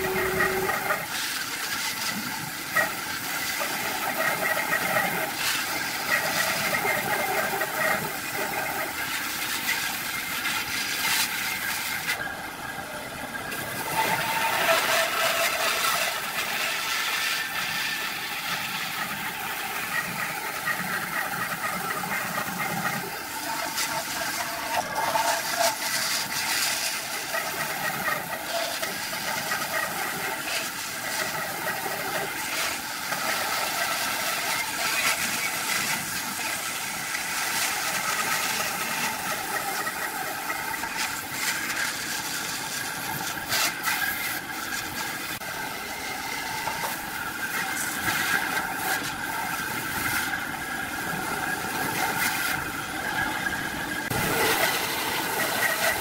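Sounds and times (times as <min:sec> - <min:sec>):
bandsaw cutting wood: 0:00.0 - 0:03.0, 0:54.0 - 0:56.0.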